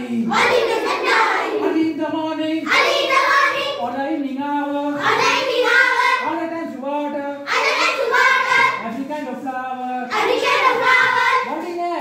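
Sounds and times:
children singing in unison: 0.2s - 1.8s, 2.7s - 3.9s, 5.0s - 6.4s, 7.5s - 9.0s, 10.1s - 11.6s.

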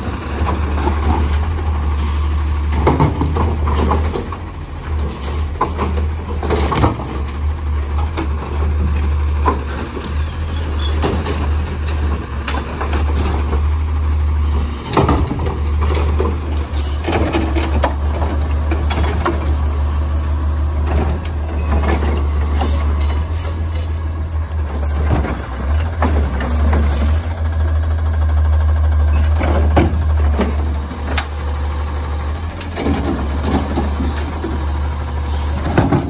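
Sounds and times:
garbage truck engine rumble: 0.0s - 36.0s
clanks and knocks: 2.7s - 4.5s, 14.7s - 19.5s.

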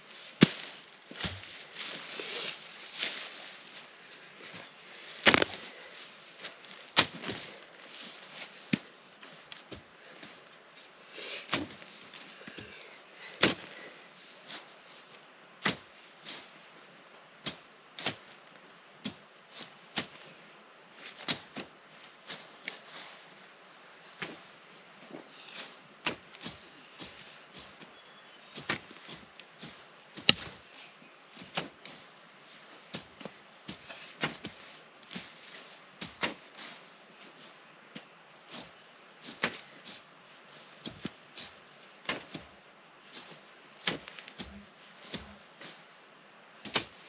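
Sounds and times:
high-pitched insect trill: 0.0s - 47.0s
hand hoe striking soil: 0.4s - 1.6s, 5.2s - 5.6s, 6.9s - 7.5s, 28.6s - 30.6s, 32.9s - 35.4s, 40.8s - 42.5s, 43.2s - 45.8s, 46.6s - 47.0s.

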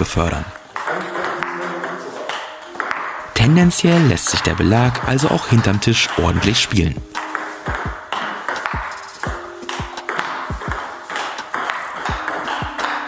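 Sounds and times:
table tennis ball clicking: 0.7s - 3.2s, 7.1s - 13.0s.

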